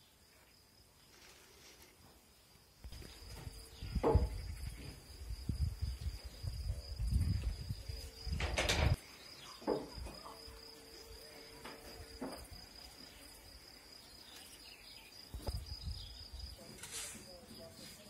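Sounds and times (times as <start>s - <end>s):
high-pitched insect buzz: 2.9s - 8.4s.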